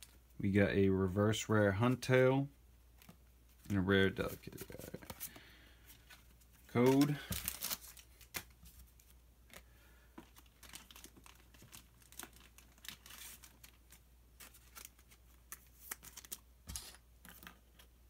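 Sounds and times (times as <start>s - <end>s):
foil wrapper crinkling: 6.7s - 8.5s, 10.2s - 16.4s.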